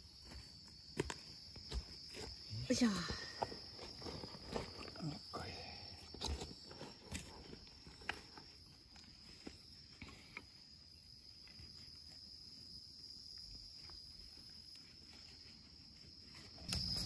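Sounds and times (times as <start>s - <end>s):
high-pitched insect drone: 12.3s - 17.0s.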